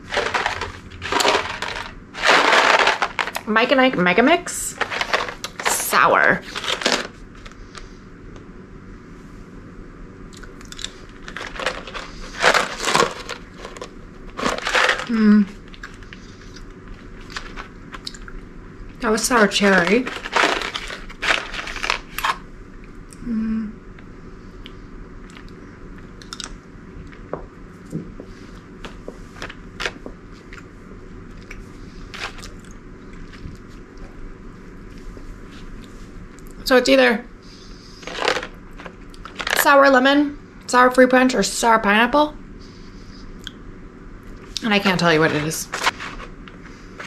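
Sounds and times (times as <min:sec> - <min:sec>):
steady low hum: 0:00.0 - 0:47.0
person chewing candy: 0:10.3 - 0:13.8, 0:14.4 - 0:18.4, 0:25.2 - 0:27.2
cardboard box tearing: 0:11.4 - 0:13.4.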